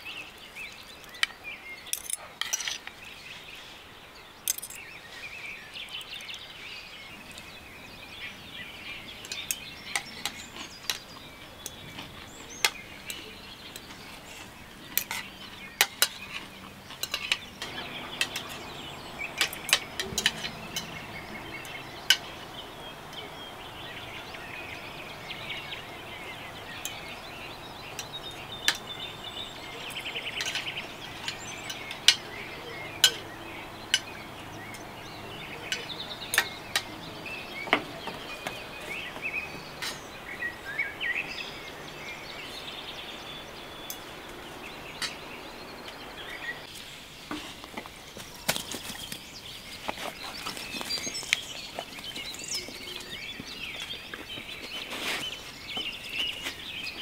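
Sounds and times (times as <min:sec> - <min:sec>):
birds chirping: 0:00.0 - 0:57.0
cutlery clinking on a plate: 0:15.0 - 0:22.3.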